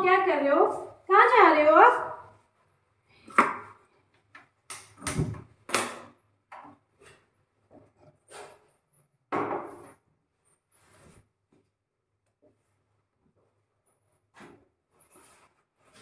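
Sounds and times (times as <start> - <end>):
kitchen knocks and clatters: 4.7 - 10.1.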